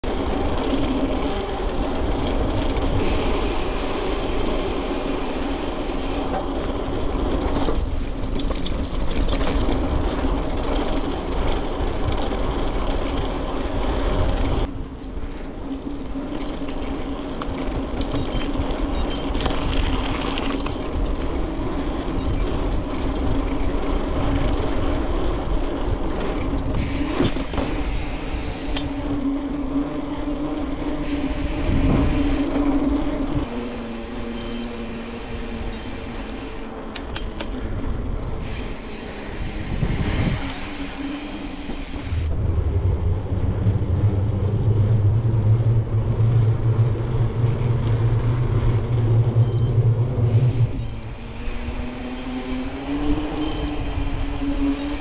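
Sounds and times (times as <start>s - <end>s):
wind rumbling on microphone: 0.0s - 55.0s.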